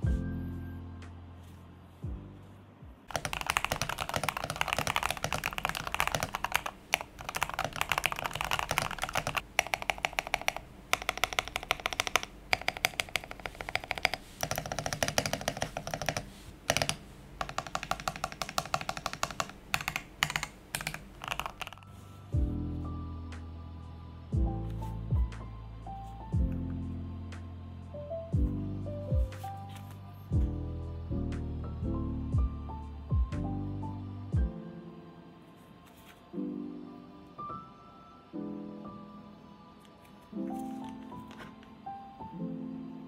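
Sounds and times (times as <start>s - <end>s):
mechanical keyboard typing: 3.1s - 21.9s.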